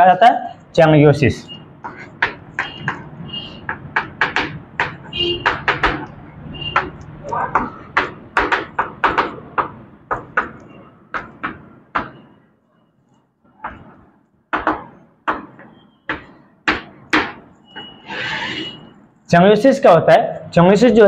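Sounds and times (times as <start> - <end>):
chalk tapping on blackboard: 1.8 - 12.2, 13.6 - 17.4.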